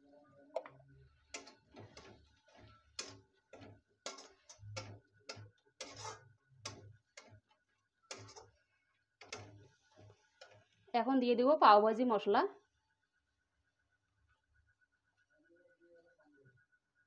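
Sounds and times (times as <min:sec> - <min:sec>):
spatula scraping a steel pan: 0:00.6 - 0:10.9.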